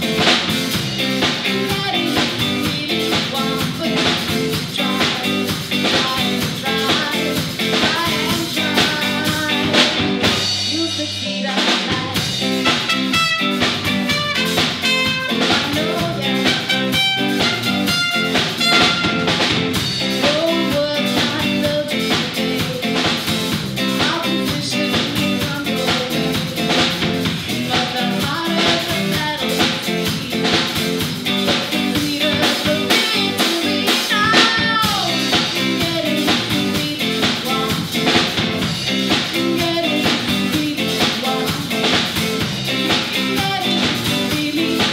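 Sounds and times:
bass guitar: 0.0s - 44.9s
drum kit: 0.0s - 44.9s
electric guitar: 0.0s - 44.9s
woman singing: 1.2s - 13.4s, 14.3s - 18.9s, 20.1s - 38.4s, 39.0s - 44.9s
trumpet: 12.6s - 15.7s, 16.4s - 19.6s.

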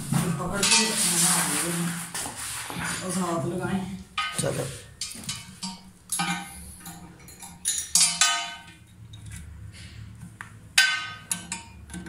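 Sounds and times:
wrench clinking on metal: 5.0s - 9.3s.

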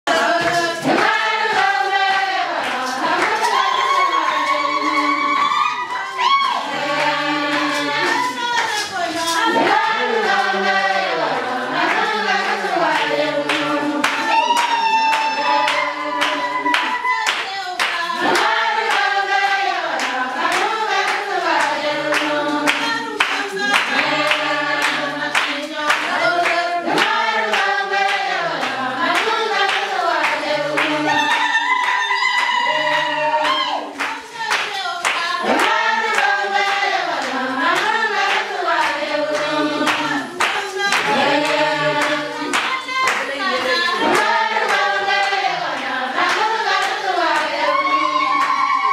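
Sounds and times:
hand-clapping: 0.0s - 48.9s
women singing together: 0.0s - 48.9s.

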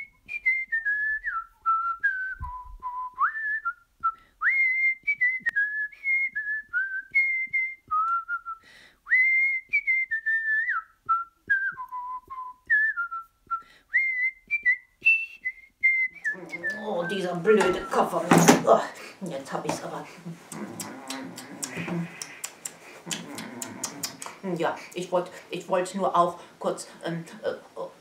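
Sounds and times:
person whistling a tune: 0.0s - 18.4s.

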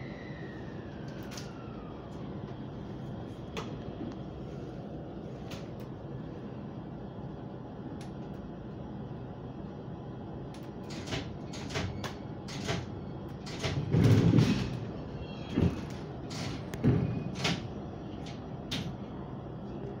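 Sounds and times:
train couplers knocking and clunking: 10.6s - 19.1s.

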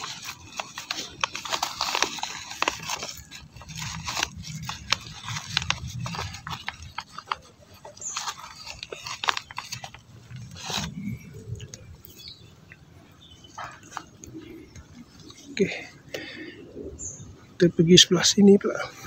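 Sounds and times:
soil scraping against plastic bag: 0.0s - 12.5s.

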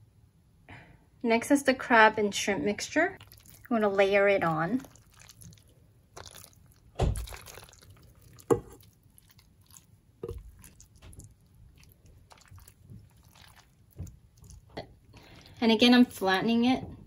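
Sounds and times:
soft wet squishing: 3.1s - 16.4s.

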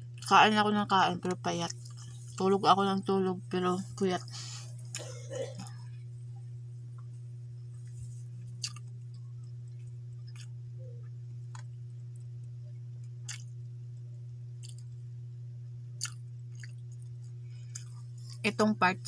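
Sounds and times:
steady low hum: 0.0s - 19.0s
mouth clicks and chewing smacks: 8.6s - 9.0s, 13.2s - 13.5s, 14.6s - 14.9s, 16.0s - 17.1s.

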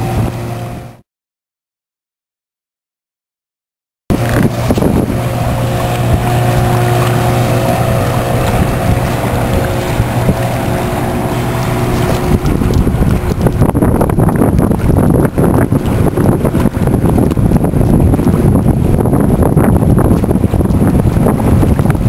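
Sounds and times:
wind buffeting microphone: 0.0s - 0.9s, 4.1s - 22.0s
boat engine humming: 0.0s - 1.0s, 4.1s - 22.0s.

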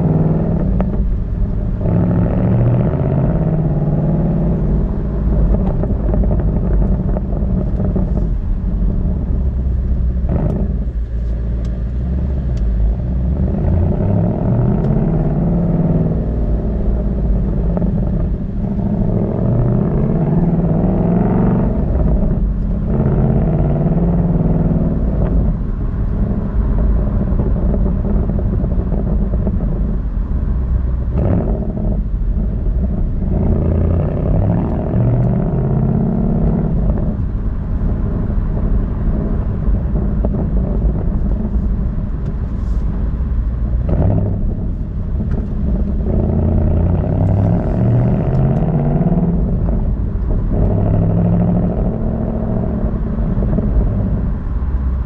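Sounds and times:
car engine exhaust revving: 0.0s - 55.0s.

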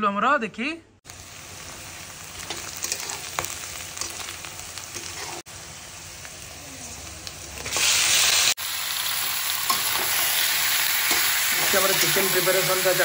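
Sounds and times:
onion sizzling in hot oil: 1.0s - 13.0s
spatula scraping a pan: 2.5s - 3.5s, 4.9s - 5.5s.

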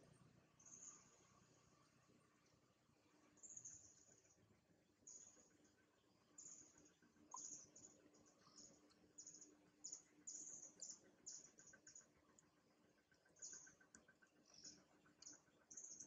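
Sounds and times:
faint low hum: 0.0s - 16.0s.

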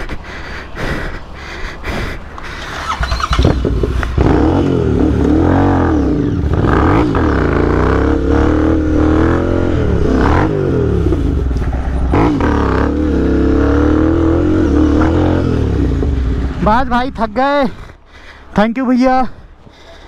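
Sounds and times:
motorcycle engine revving: 2.6s - 16.6s.

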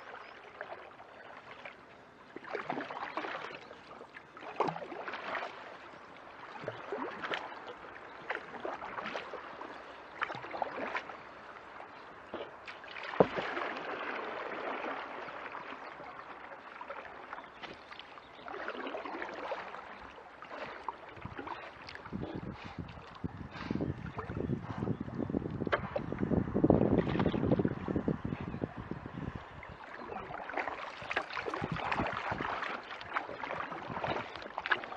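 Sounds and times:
paddle splashing water: 0.0s - 34.9s.

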